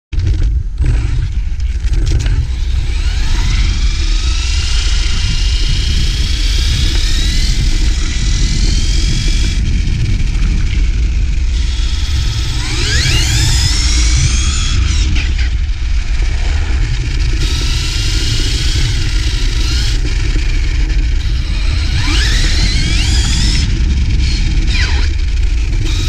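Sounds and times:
wind rumble on microphone: 0:00.1 - 0:26.0
electric motor whining: 0:00.7 - 0:26.0.

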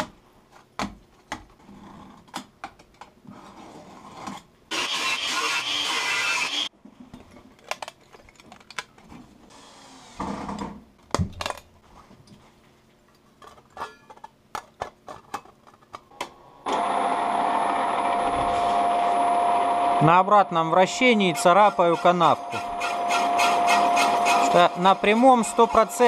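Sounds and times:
metal parts clicking and knocking: 0:07.3 - 0:09.2, 0:13.4 - 0:16.0.

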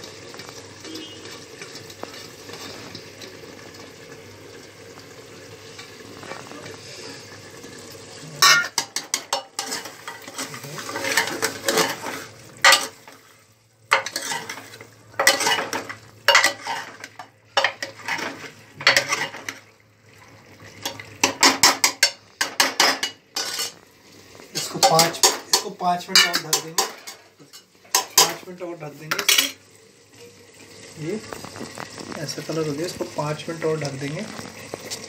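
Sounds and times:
ladle scraping cooking pot: 0:08.3 - 0:13.2, 0:13.9 - 0:19.7, 0:20.8 - 0:23.8, 0:24.5 - 0:28.4.

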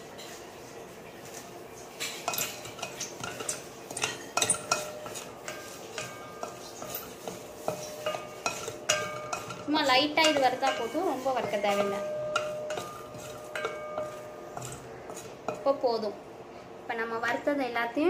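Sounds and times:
wooden spatula scraping metal pan: 0:01.2 - 0:16.0.

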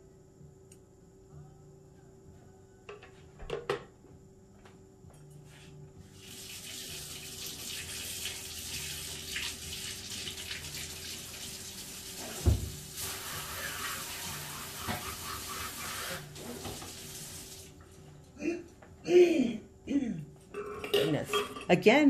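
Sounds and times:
water running from faucet: 0:06.1 - 0:17.8.

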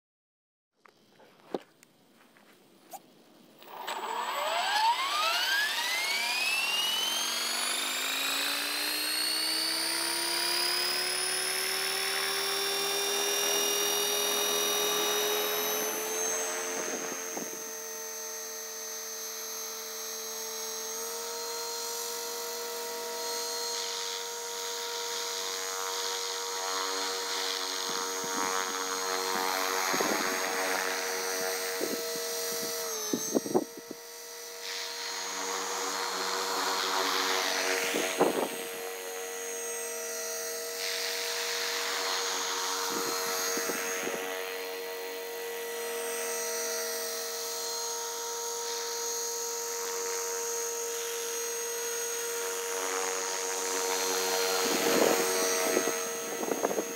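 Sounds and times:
model helicopter rotor whine: 0:02.9 - 0:56.9.

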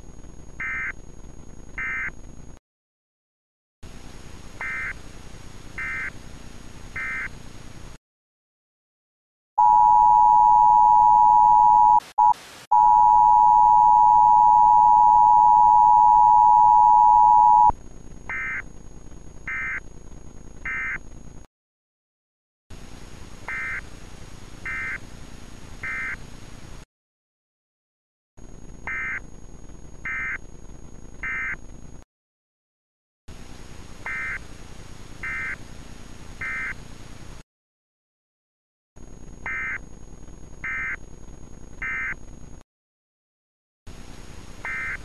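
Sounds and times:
two-tone attention signal: 0:09.6 - 0:17.7.

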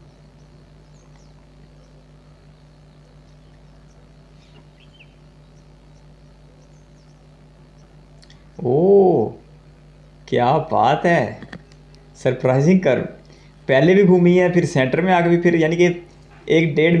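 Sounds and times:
faint bird chirps: 0:00.0 - 0:10.2
low steady hum: 0:00.0 - 0:17.0.

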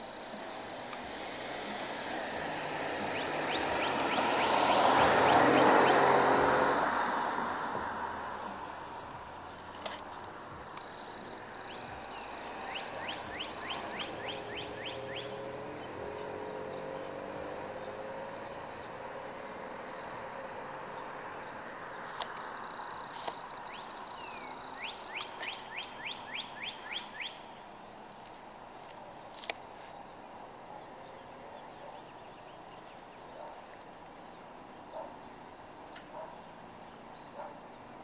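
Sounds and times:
background hiss: 0:00.0 - 0:31.5
songbird singing: 0:00.0 - 0:38.0
faint bird chirp: 0:09.4 - 0:28.1, 0:29.0 - 0:38.0.

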